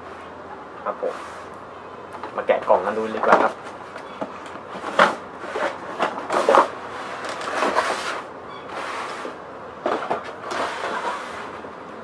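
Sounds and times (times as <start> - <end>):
cardboard box scraping: 4.8 - 11.7.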